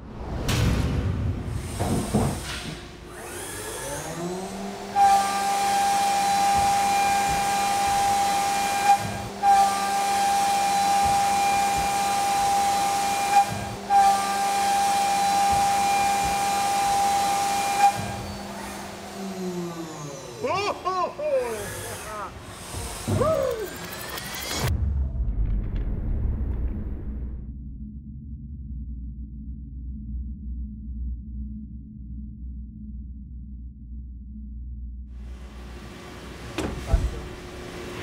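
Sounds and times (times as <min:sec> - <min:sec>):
milling machine whine: 0:01.7 - 0:24.7, 0:35.2 - 0:38.0
spindle winding up: 0:21.5 - 0:24.7.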